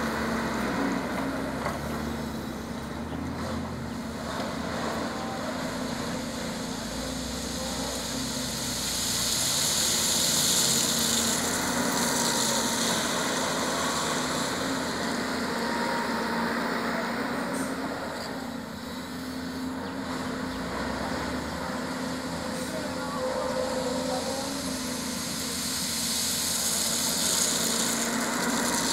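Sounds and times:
excavator engine droning: 0.0s - 28.9s
high hiss: 5.8s - 16.4s, 22.0s - 28.9s.

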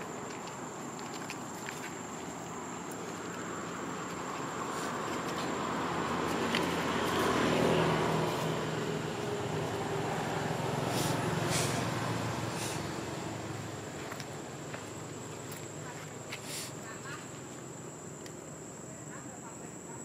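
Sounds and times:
vehicle engine passing: 3.2s - 14.6s.

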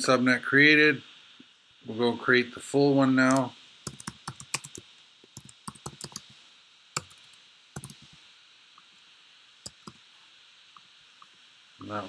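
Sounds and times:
keyboard keys tapping: 3.3s - 4.8s, 5.4s - 6.3s, 7.0s - 8.1s, 9.7s - 10.0s.

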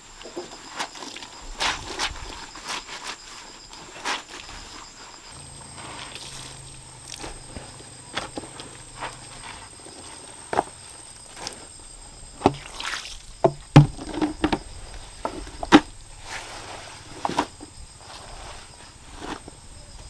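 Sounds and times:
wet clothes splashing and sloshing: 12.6s - 13.4s.

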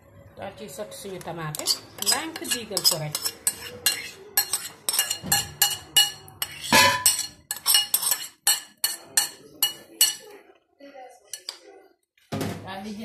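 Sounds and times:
spoon scraping and tapping metal tin: 1.2s - 10.3s.

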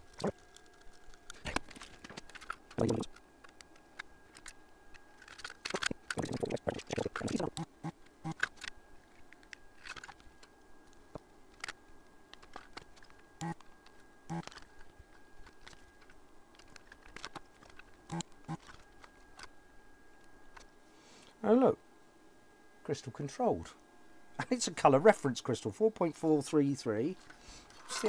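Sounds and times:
tools and components clicking: 0.1s - 7.5s.

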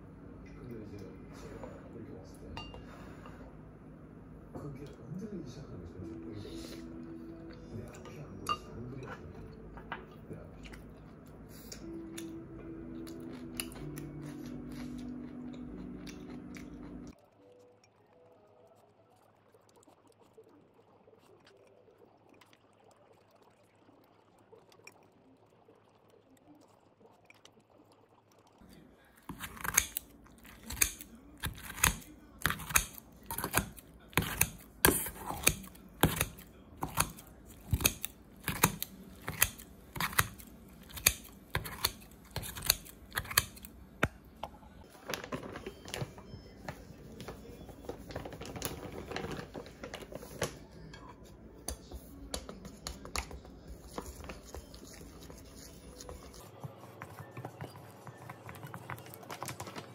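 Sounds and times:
knife chopping on cutting board: 29.3s - 44.2s.

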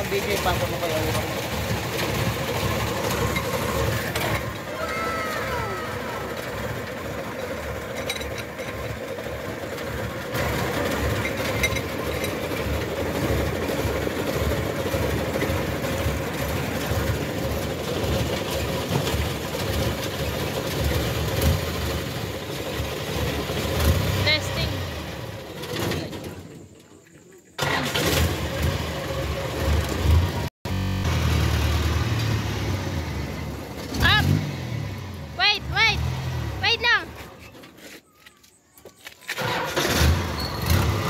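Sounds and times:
engine idling: 0.0s - 26.8s.

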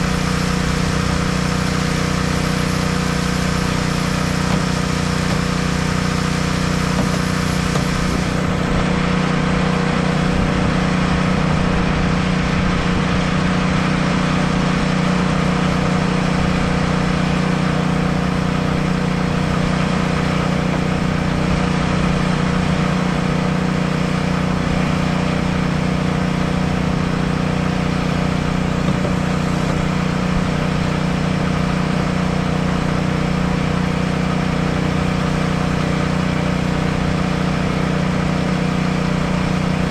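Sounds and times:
engine droning steadily: 0.0s - 39.9s.

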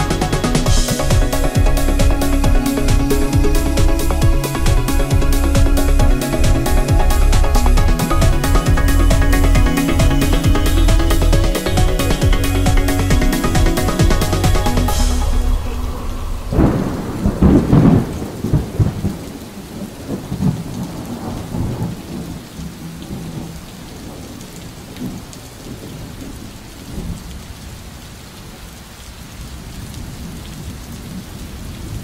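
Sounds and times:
thunder rumble: 0.0s - 24.4s
steady rain: 0.0s - 32.0s.

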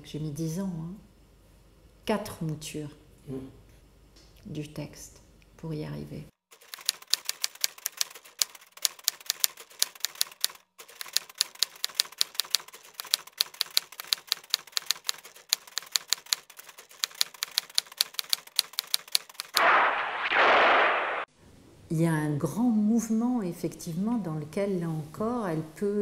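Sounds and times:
typewriter keys clicking: 6.6s - 19.6s
loud rushing noise: 19.6s - 21.3s.

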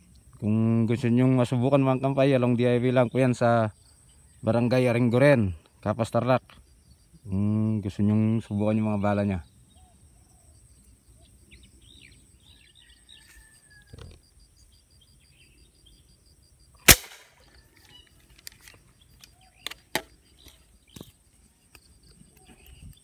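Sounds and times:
air rifle shot: 16.8s - 17.4s.

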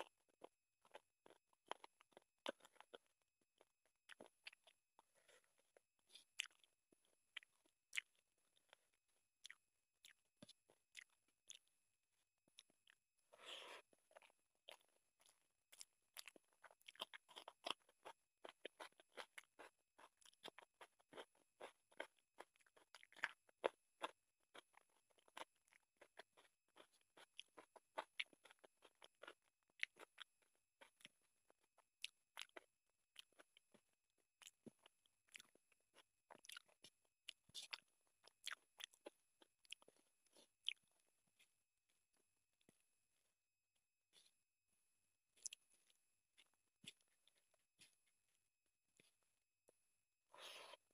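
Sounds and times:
wet chewing and lip smacks: 0.0s - 11.8s, 12.4s - 42.8s, 45.4s - 49.8s.

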